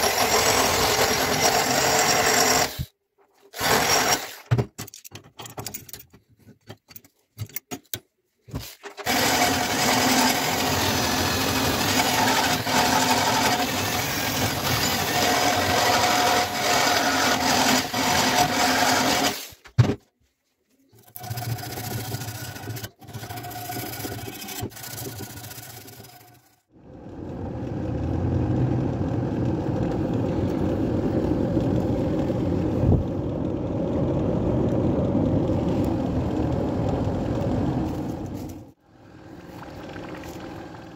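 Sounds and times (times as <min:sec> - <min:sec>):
low rumble of forge fire: 0:26.8 - 0:40.9.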